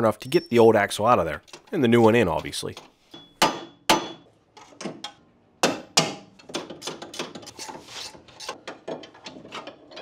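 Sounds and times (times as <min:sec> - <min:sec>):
tools clicking and tapping metal: 0:01.4 - 0:03.3
sharp metallic knocks: 0:03.2 - 0:04.3.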